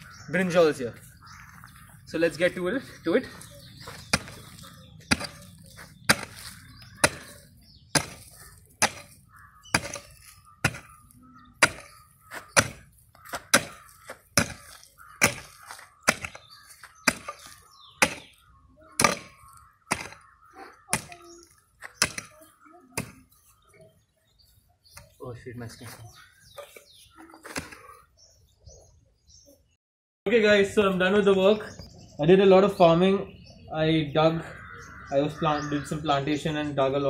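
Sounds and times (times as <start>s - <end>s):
pickaxe striking soil: 4.1s - 4.5s, 5.1s - 7.4s, 8.0s - 11.0s, 11.6s - 18.4s, 19.0s - 20.3s.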